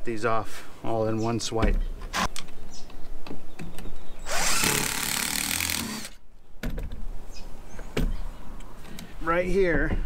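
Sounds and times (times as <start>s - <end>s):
power drill driving screw: 4.2s - 6.2s.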